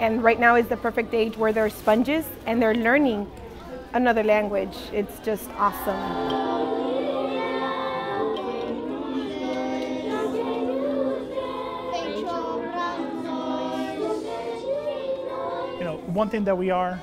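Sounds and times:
children singing in unison: 5.7 - 16.2.

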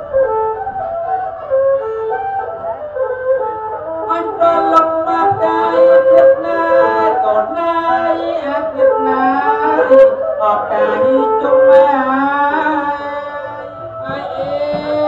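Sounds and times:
bowed fiddle melody: 0.0 - 15.0
man singing into a microphone: 4.4 - 15.0.

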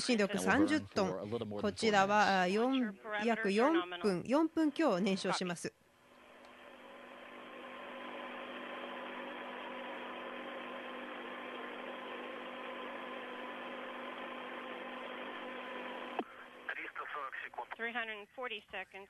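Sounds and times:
steady hum: 0.0 - 18.2
radio channel hiss: 7.2 - 18.2.

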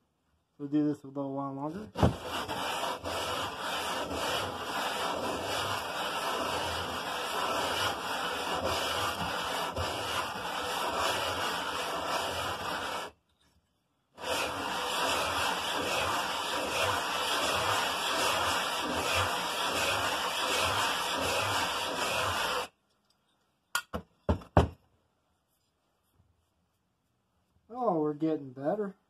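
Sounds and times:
metal rasping on sandpaper: 2.0 - 13.2, 14.2 - 22.7.

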